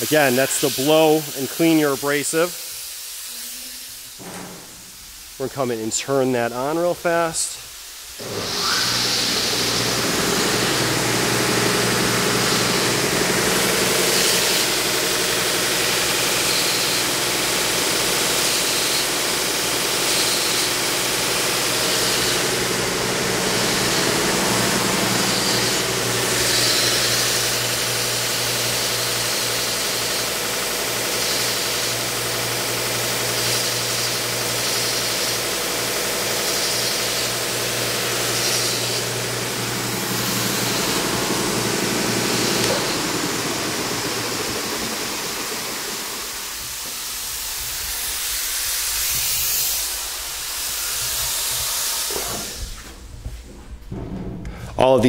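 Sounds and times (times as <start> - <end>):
compressed air hissing: 0.0 - 17.2, 36.3 - 53.1
belt sander humming: 8.2 - 52.8.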